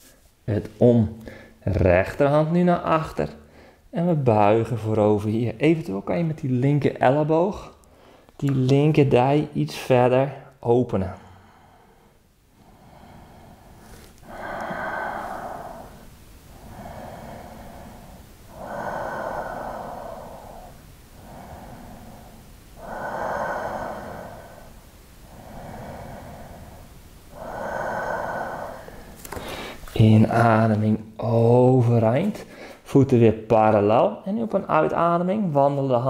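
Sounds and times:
man breathing deeply: 0:01.2 - 0:01.6, 0:03.4 - 0:03.9, 0:07.8 - 0:08.4, 0:11.2 - 0:30.0, 0:32.4 - 0:32.8.

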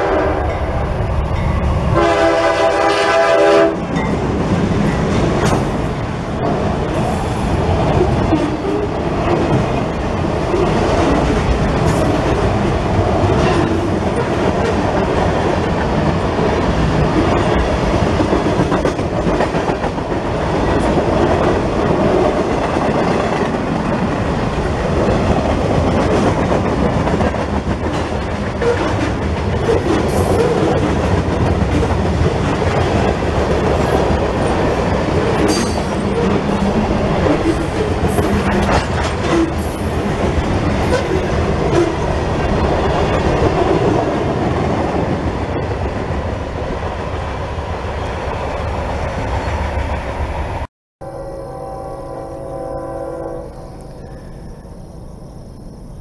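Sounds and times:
freight train rumbling and clattering: 0:00.0 - 0:50.7
train wheel squeals: 0:51.1 - 0:56.0.

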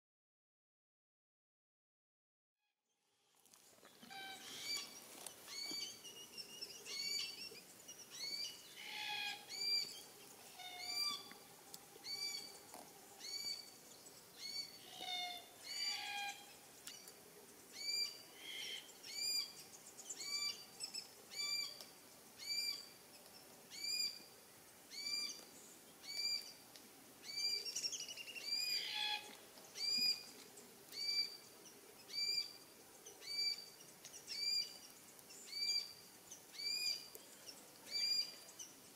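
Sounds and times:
scattered bird calls: 0:03.8 - 0:11.4, 0:12.0 - 0:21.8
cockatoos calling: 0:03.9 - 0:07.6, 0:08.2 - 0:11.4.

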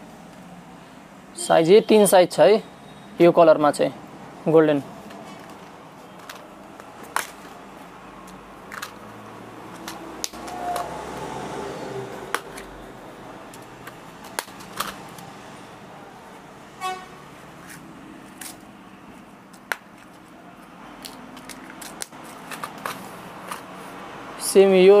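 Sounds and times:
plastic packets clicking and tapping: 0:05.0 - 0:09.1, 0:09.7 - 0:10.9, 0:12.3 - 0:12.7, 0:13.5 - 0:15.3, 0:19.5 - 0:23.8
vehicle horn toot: 0:16.8 - 0:17.2.

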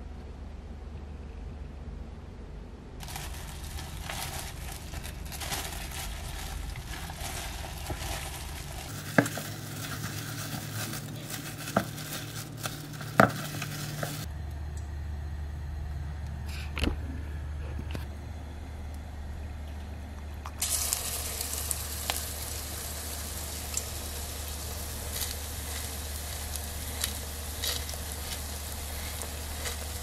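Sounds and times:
gloved hand squishing batter: 0:03.0 - 0:14.3, 0:23.8 - 0:30.0
spatula stirring batter: 0:25.0 - 0:30.0.

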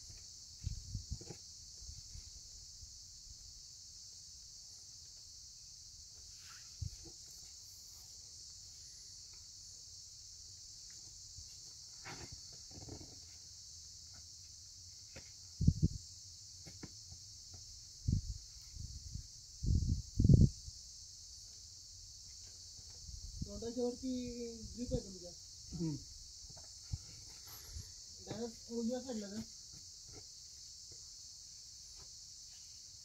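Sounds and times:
high-pitched insect drone: 0:00.0 - 0:33.0
dull low thumps and scuffs: 0:15.6 - 0:16.0.

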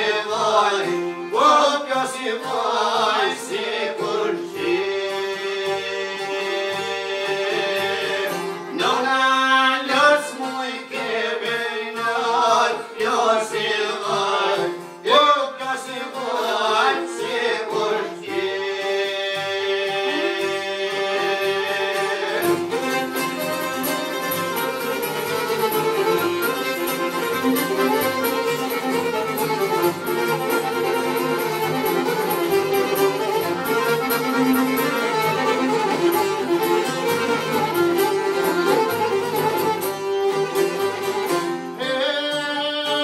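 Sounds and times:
person singing: 0:00.0 - 0:23.6, 0:41.5 - 0:43.0
violin and instruments playing: 0:00.0 - 0:43.0.

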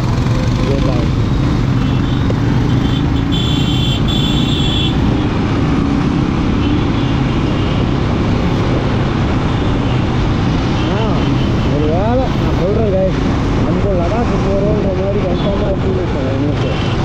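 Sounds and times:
motorcycle engine running: 0:00.0 - 0:04.6.

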